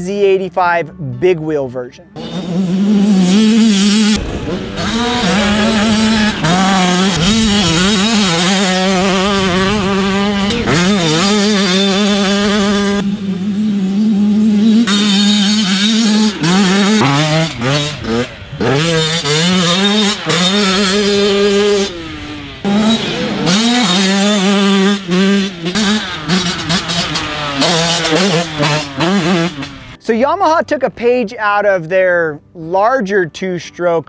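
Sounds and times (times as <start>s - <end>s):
dirt bike engine revving: 2.1s - 30.0s.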